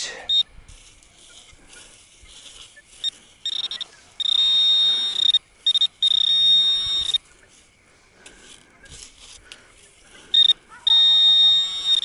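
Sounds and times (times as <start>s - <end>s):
metal detector beeping: 0.0s - 0.5s, 2.2s - 7.3s, 10.3s - 12.0s.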